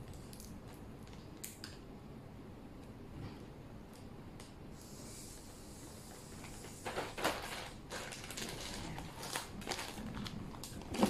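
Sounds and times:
plastic wrapping crinkling: 6.6s - 11.0s.

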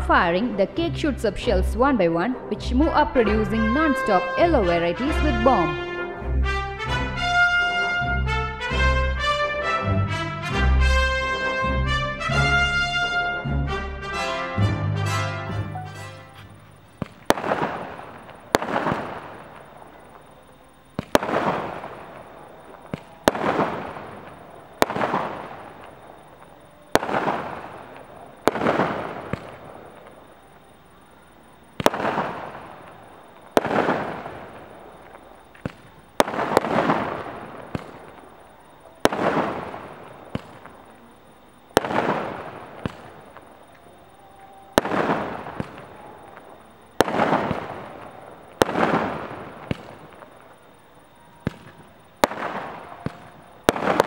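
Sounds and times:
fireworks bangs with hiss: 15.7s - 54.0s.

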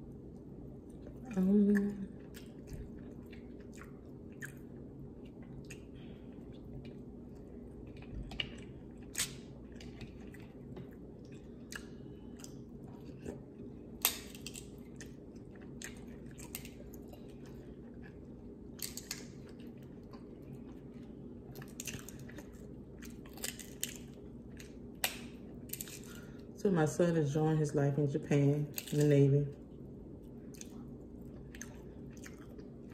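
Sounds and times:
close-up chewing: 0.0s - 26.6s, 30.2s - 32.9s
steady low hum: 0.0s - 32.9s
shellfish shells cracking: 14.0s - 15.1s, 18.8s - 19.6s, 23.1s - 26.3s.

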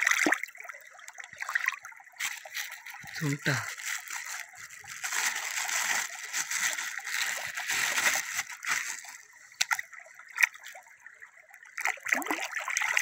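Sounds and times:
flowing river water: 0.0s - 13.0s
hands sloshing bag in water: 1.4s - 10.8s.

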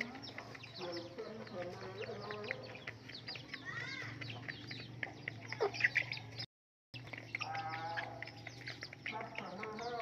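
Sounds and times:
hens pecking grain on stone: 0.0s - 10.0s
wavering animal call: 7.4s - 8.4s.

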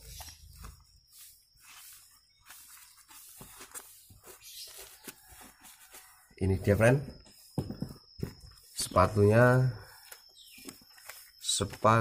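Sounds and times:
hands rustling boot fabric: 0.0s - 6.9s.

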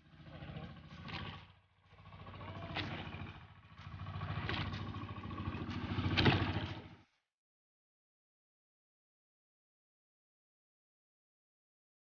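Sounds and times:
small boat engine running: 0.0s - 7.2s.

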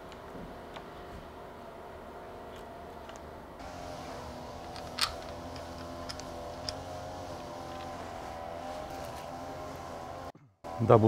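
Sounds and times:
steady background hum: 0.0s - 11.0s
light metal clicks of bolts: 4.6s - 8.0s.

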